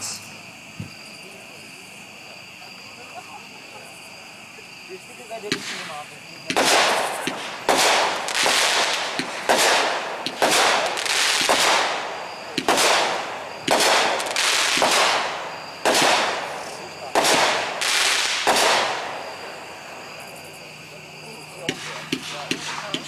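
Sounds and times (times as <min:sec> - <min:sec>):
fireworks firing: 0:05.4 - 0:20.3, 0:21.5 - 0:23.0.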